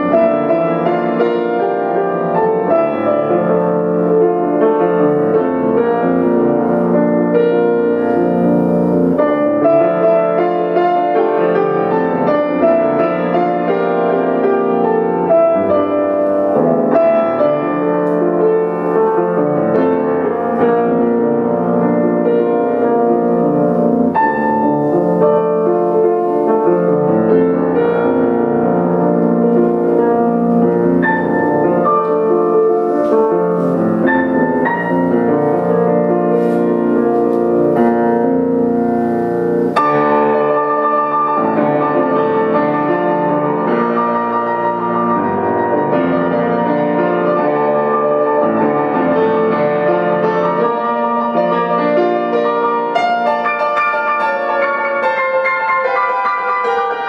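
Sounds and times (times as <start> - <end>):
grand piano playing: 0.0 - 57.0.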